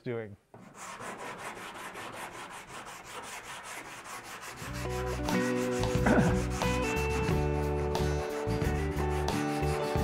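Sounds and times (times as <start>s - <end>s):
sanding block rasping on metal: 0.6s - 10.0s
background music: 4.0s - 10.0s.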